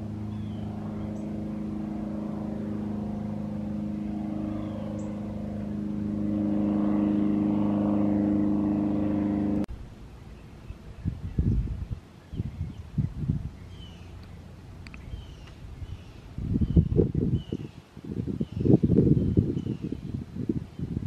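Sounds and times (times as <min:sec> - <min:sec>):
engine running steadily: 0:00.0 - 0:11.6, 0:12.6 - 0:17.6.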